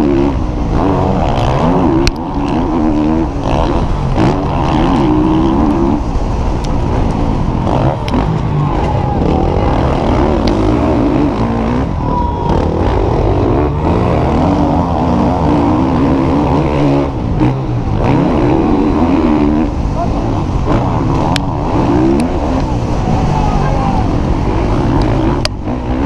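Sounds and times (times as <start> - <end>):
motorbike engine revving: 0.0 - 26.0.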